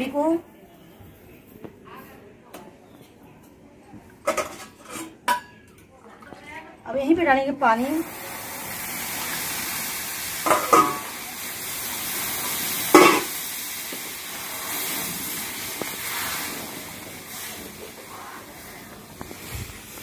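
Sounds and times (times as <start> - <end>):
water sizzling in hot pan: 7.6 - 20.0.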